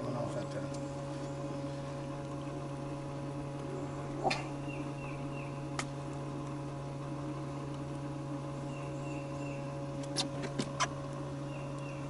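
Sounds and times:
electric boat motor hum: 0.0 - 12.0
faint bird chirps: 8.6 - 9.7.

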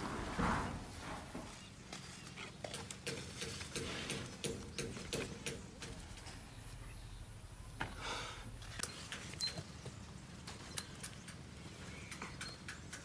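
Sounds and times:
vines and leaves rustling: 0.8 - 7.0
stems snapping: 1.9 - 6.4.

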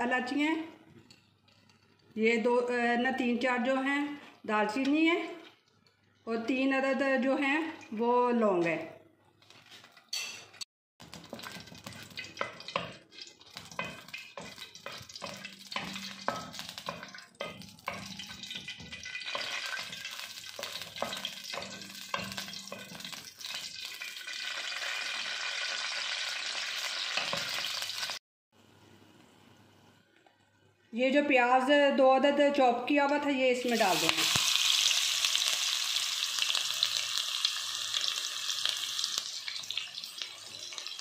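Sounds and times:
spices sizzling in hot oil: 11.0 - 28.2, 33.6 - 41.0.

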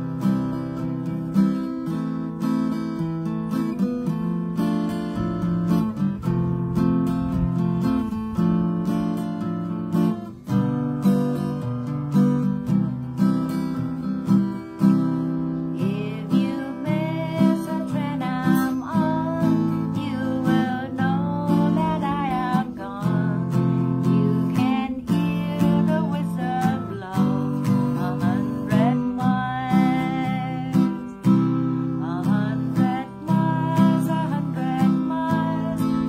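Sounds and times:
acoustic guitar strumming: 0.0 - 36.0
woman singing: 15.4 - 36.0.

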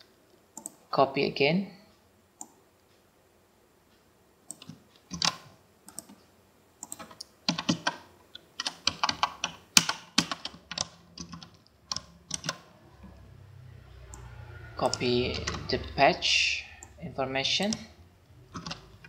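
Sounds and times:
computer keyboard keystrokes: 4.5 - 6.2, 6.8 - 8.0, 8.6 - 12.6, 18.5 - 18.9.

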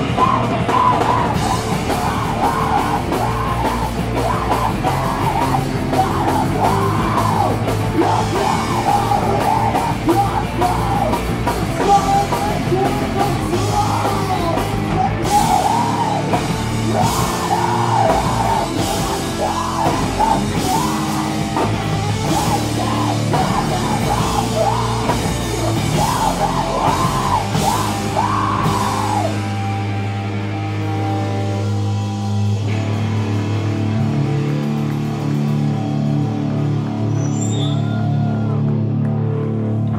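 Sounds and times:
drums with crashing cymbals: 0.0 - 29.6
vocalist singing: 0.0 - 29.7
bass guitar: 0.0 - 39.9
distorted guitars: 0.0 - 39.9.

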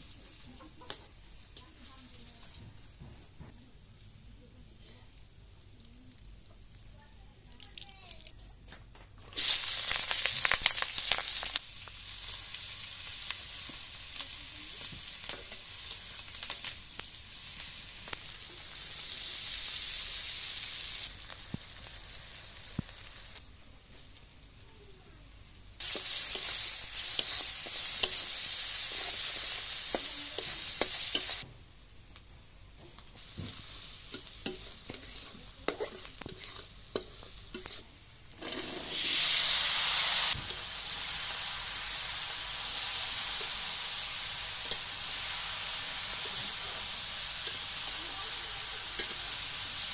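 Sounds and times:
onions sizzling in hot oil: 0.0 - 7.0, 9.3 - 49.9
metal spatula scraping pan: 34.4 - 39.1.

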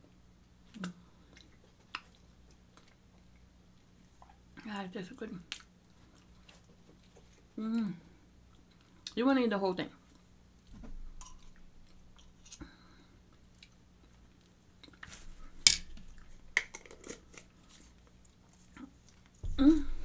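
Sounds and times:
person chewing: 13.2 - 15.1.

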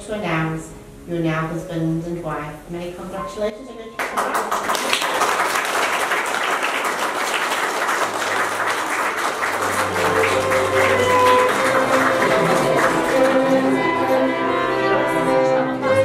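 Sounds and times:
crowd applauding: 4.0 - 14.8
music with held notes: 9.3 - 16.0.

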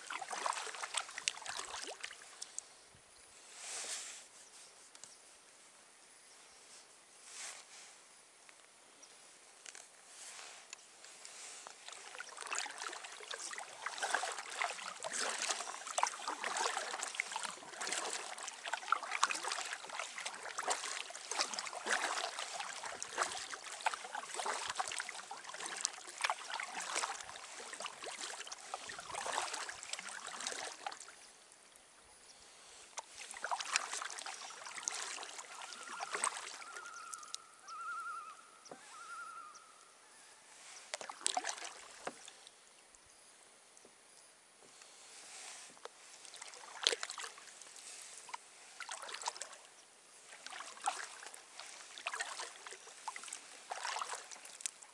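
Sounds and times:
kayak paddle splashing: 0.0 - 2.7, 10.2 - 31.3, 32.4 - 39.5, 40.6 - 42.6, 44.8 - 54.9
water dripping off paddle: 0.0 - 2.7, 11.7 - 31.2, 32.9 - 37.4, 40.9 - 42.6, 46.2 - 47.6, 50.3 - 54.9.

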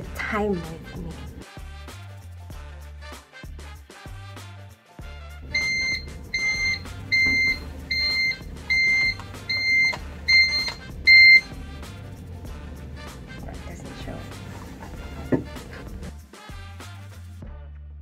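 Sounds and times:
hip-hop background music: 0.0 - 18.0
short electronic beeps: 5.5 - 11.5.

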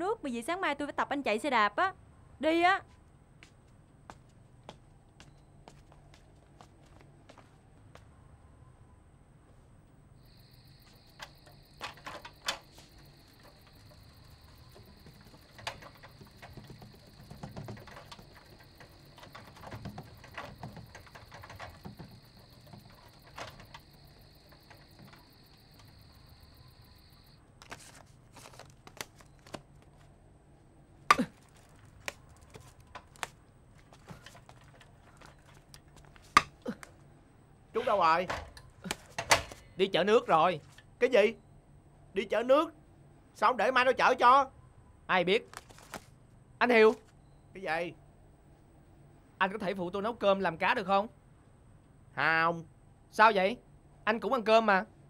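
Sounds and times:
insect chirring: 10.2 - 27.4
light clicks and clatter: 11.2 - 25.9.

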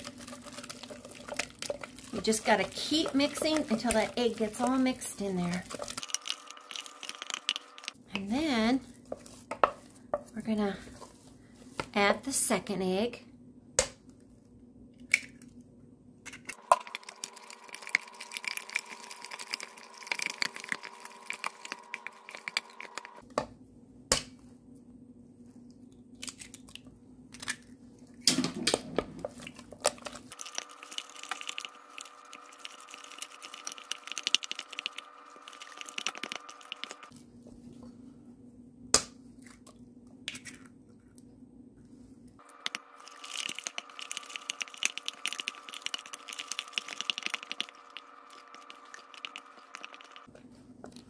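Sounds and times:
wooden spoon beating dough: 0.0 - 6.2.

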